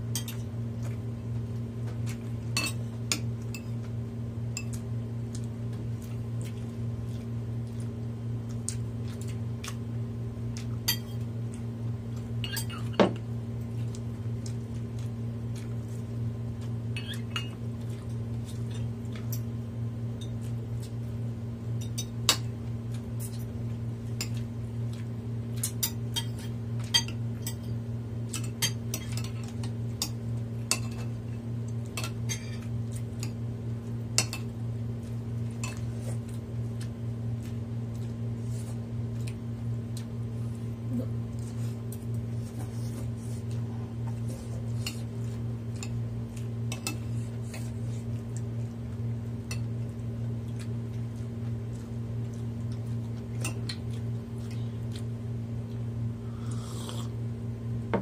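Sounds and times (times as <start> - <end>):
cutlery clinking against dishes: 2.6 - 3.8, 25.6 - 27.7.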